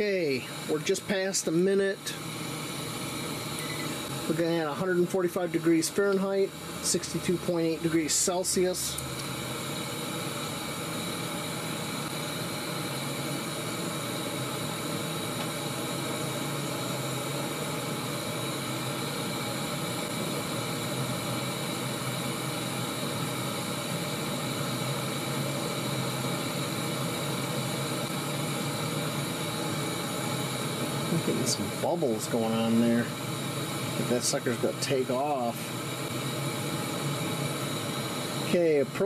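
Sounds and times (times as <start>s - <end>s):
gas stove flame hissing: 0.0s - 39.0s.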